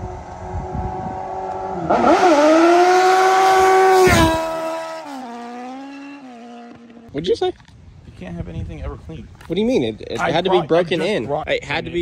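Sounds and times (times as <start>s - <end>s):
vehicle engine revving: 0.0s - 7.1s.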